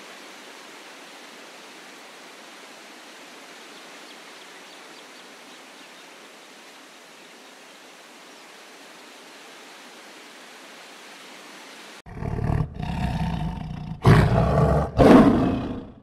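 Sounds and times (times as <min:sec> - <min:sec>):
faint outdoor hiss: 0:00.0 - 0:15.9
lion roaring: 0:12.1 - 0:16.0.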